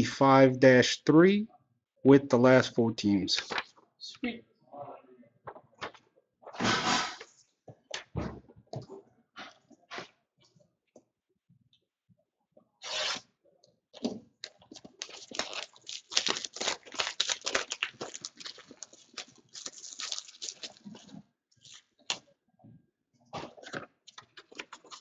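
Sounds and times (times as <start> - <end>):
plastic wrap tearing and crinkling: 12.8 - 13.2, 14.4 - 22.2.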